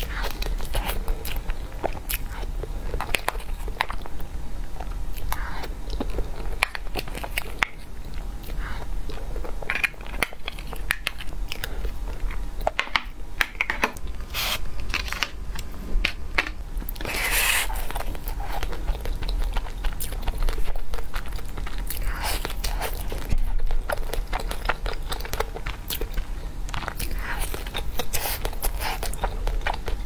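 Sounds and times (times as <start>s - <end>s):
wet chewing: 16.9s - 30.0s.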